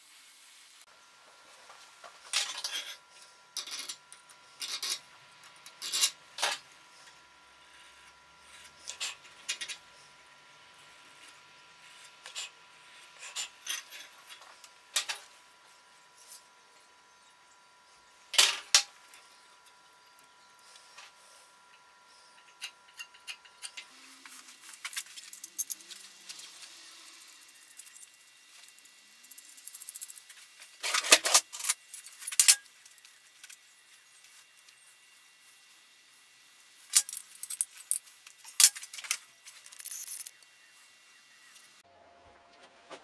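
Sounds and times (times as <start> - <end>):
tools scraping on steel file: 11.1 - 14.4.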